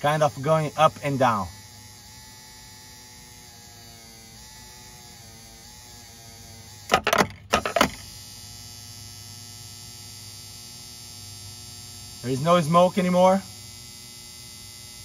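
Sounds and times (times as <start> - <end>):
electric motor humming: 0.0 - 15.0
motor clattering knocks: 6.9 - 8.1.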